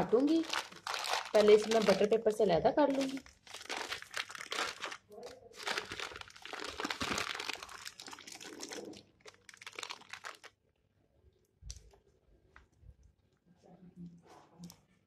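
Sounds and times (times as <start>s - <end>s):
paper crinkling: 0.0s - 10.6s.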